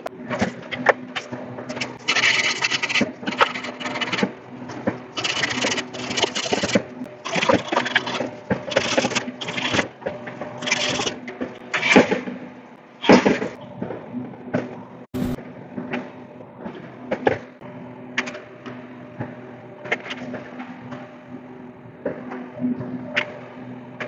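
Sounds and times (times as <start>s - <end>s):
sanding cloth rasping on pipe: 5.2s - 9.8s.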